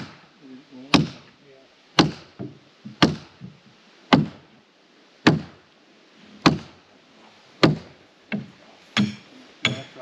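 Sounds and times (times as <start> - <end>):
hammer striking stake: 0.9 - 1.3, 2.0 - 4.4, 5.2 - 5.6, 6.4 - 6.8, 7.6 - 10.0.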